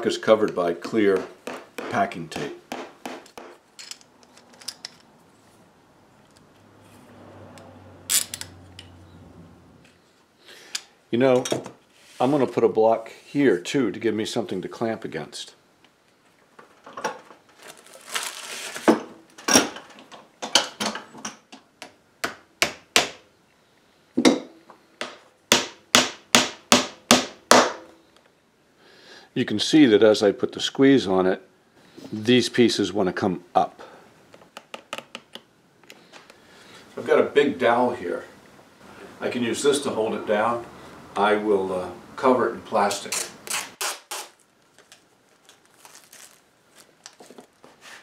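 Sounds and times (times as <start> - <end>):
hammer tapping a nail into wood: 0.8 - 3.6, 24.2 - 27.8.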